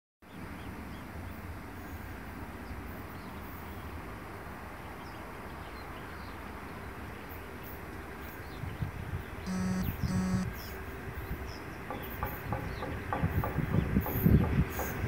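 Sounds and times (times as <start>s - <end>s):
faint bird chirps: 9.4s - 10.8s.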